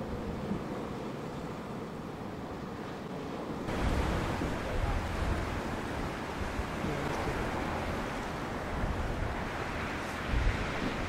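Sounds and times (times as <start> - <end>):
choppy sea waves: 0.0 - 11.0
wind gusting on microphone: 2.4 - 11.0.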